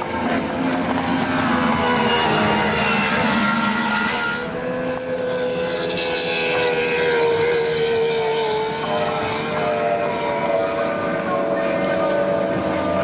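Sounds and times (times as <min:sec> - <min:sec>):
boat outboard engines passing: 0:00.0 - 0:13.0.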